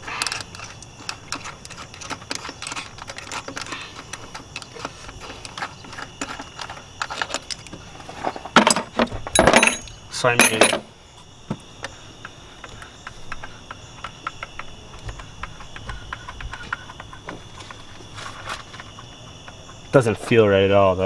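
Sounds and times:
small metallic clicks and rattles: 0.0 - 7.8, 11.8 - 20.0
metal tool clattering: 8.6 - 10.9.

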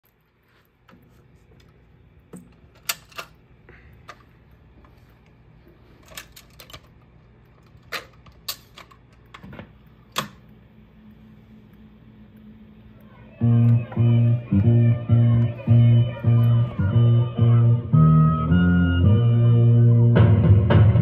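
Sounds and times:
record changer clicks and clunks: 6.0 - 10.6
low hum: 9.0 - 21.0
pop-rock song playing: 13.4 - 21.0.

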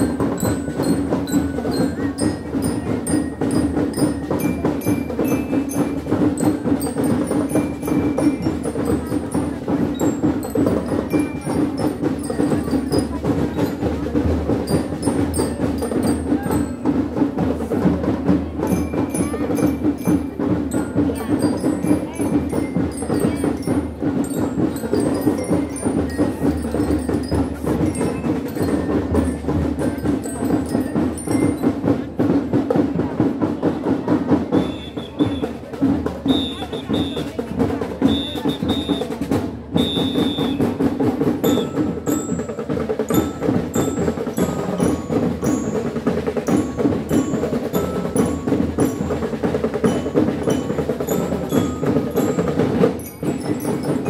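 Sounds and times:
bell lyres playing melody: 0.0 - 33.2, 34.3 - 54.0
snare and bass drum beats: 0.0 - 54.0.

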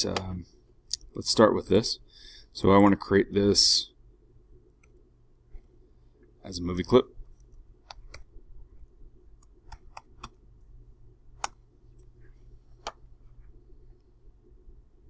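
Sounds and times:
faint low hum: 0.0 - 15.0
keyboard and mouse clicks: 7.4 - 8.3, 9.4 - 10.4, 11.4 - 11.6.

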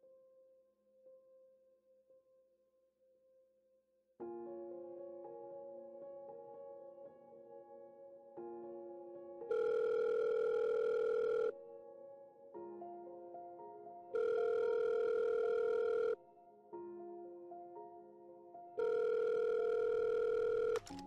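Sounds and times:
soft piano music: 0.0 - 21.0
telephone ringback tone: 9.5 - 11.5, 14.2 - 16.2, 18.8 - 21.0.

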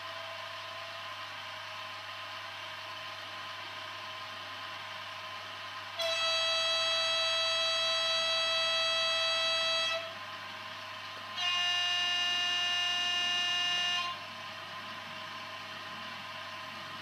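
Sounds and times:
railcar horn over loudspeaker: 6.0 - 10.2, 11.3 - 14.3.

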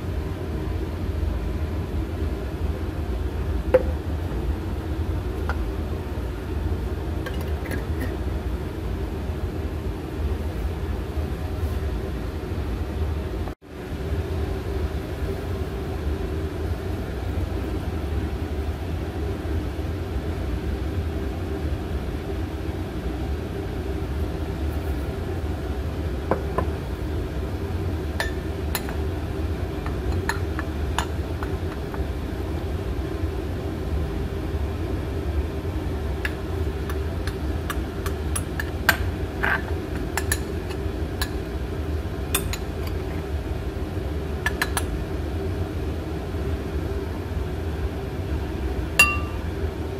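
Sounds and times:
metal spoon clinking on glass: 49.0 - 49.4.

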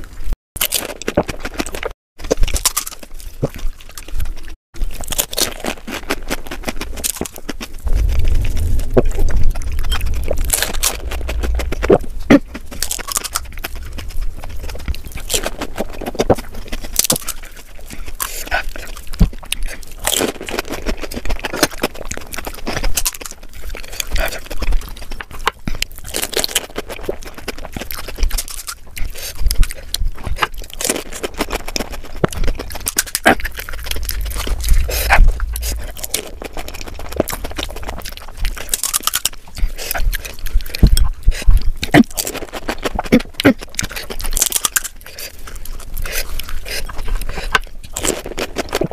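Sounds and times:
crisp shells crunching in mouth: 0.0 - 48.9
wet mouth sounds: 5.8 - 19.8, 27.9 - 48.9.

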